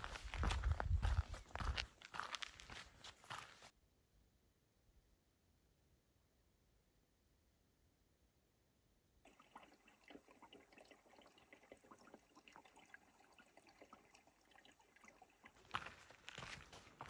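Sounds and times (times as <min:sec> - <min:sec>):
water trickling among rocks: 0:00.0 - 0:03.1, 0:09.3 - 0:17.0.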